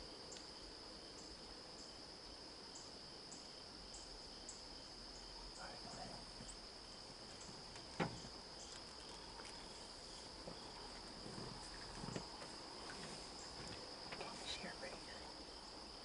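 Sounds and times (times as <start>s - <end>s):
high-pitched insect chorus: 0.0s - 16.0s
soft knocks: 7.4s - 8.4s.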